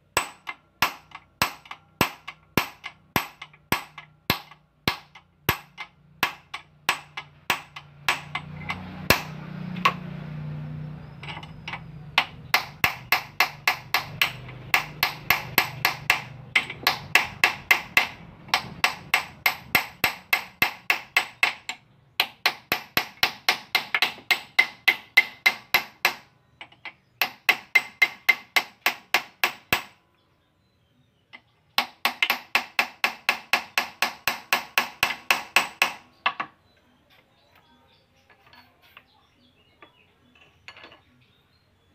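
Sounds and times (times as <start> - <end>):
metal-on-metal tapping: 0.2 - 10.1, 11.2 - 29.9.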